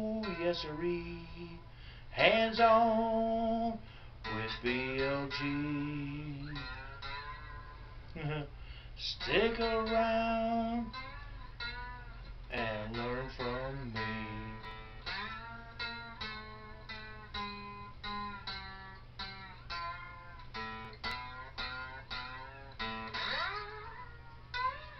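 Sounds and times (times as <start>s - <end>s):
steady low hum: 0.0s - 24.9s
lap steel guitar sliding notes: 4.2s - 8.0s, 9.0s - 24.9s.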